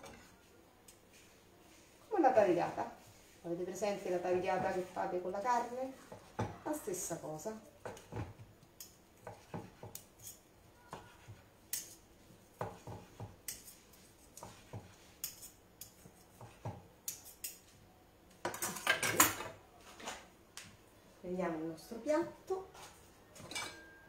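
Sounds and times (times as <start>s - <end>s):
utensils clattering: 23.4s - 24.0s.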